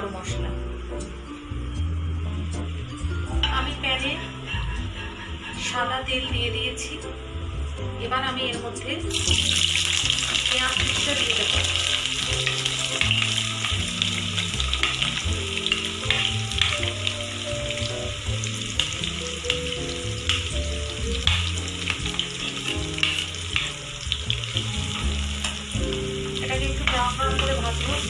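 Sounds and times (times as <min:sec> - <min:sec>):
background music: 0:00.0 - 0:28.0
onions sizzling in oil: 0:09.1 - 0:28.0.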